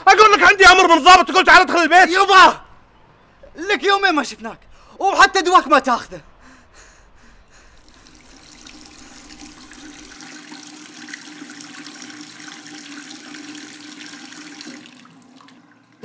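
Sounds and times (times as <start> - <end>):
small water splashes: 7.8 - 16.0
tap water running into sink: 7.8 - 16.0.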